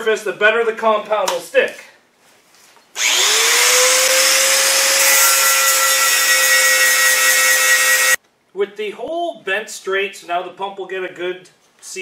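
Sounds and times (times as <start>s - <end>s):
grinder whine on metal: 3.0s - 8.2s.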